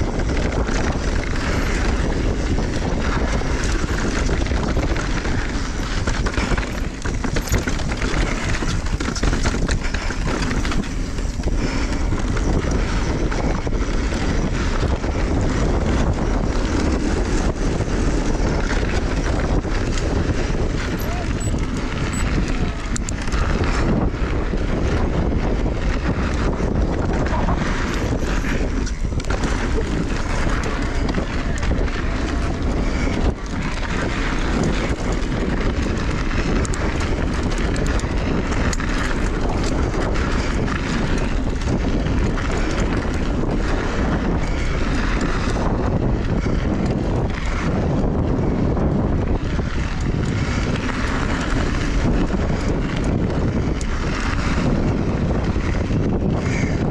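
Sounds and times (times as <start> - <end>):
bike rattles and knocks: 0.0 - 56.9
bike tyre noise on dirt: 0.0 - 56.9
wind rush on microphone: 0.0 - 56.9.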